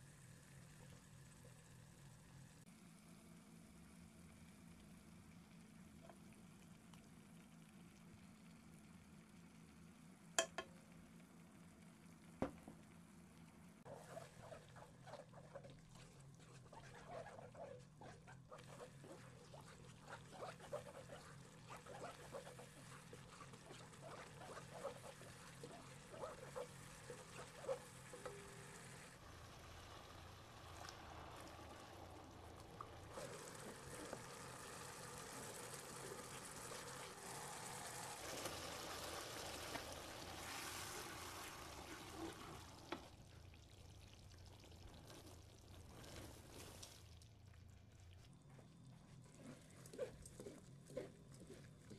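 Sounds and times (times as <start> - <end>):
sauce sizzling and bubbling: 0.0 - 51.9
spatula stirring sauce in wok: 13.9 - 29.3, 32.8 - 42.8, 48.5 - 51.9.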